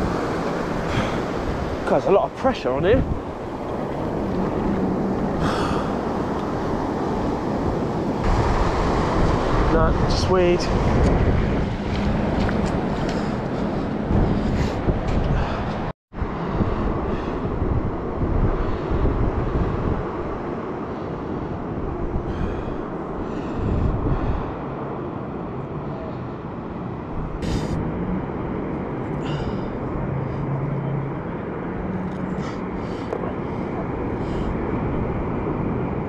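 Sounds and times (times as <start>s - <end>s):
sea washing on beach: 0.0s - 14.8s
wind rumbling on microphone: 0.0s - 36.0s.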